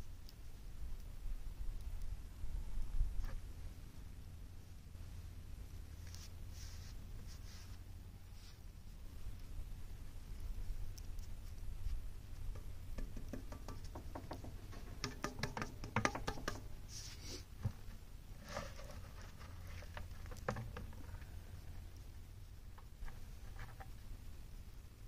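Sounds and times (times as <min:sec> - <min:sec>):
steady low rumble: 0:00.0 - 0:12.9.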